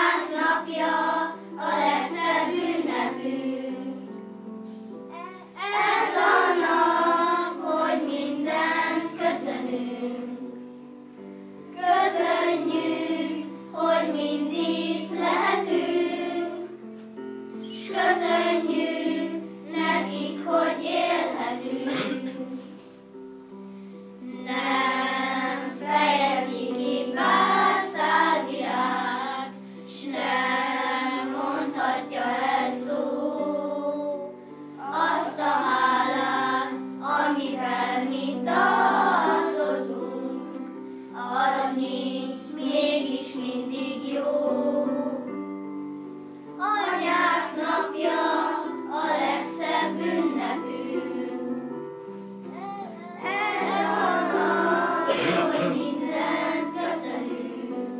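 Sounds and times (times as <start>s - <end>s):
children's choir singing: 0.0s - 4.5s, 5.1s - 23.2s, 24.2s - 45.9s, 46.6s - 57.9s
held instrumental notes: 0.0s - 57.9s.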